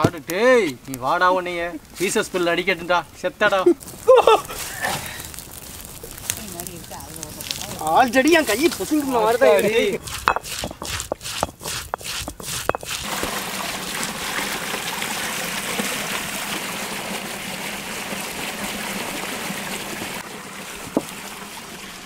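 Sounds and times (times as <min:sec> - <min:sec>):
fire crackling and popping: 0:00.0 - 0:13.4
rushing hiss of fire: 0:00.8 - 0:10.1.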